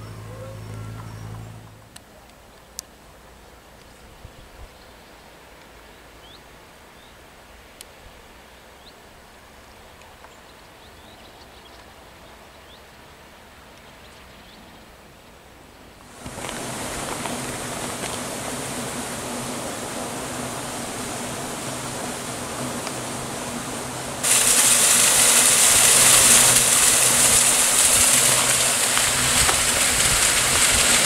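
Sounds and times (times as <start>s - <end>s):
quiet countryside ambience: 0.0s - 31.0s
loud steady rushing noise: 16.0s - 31.0s.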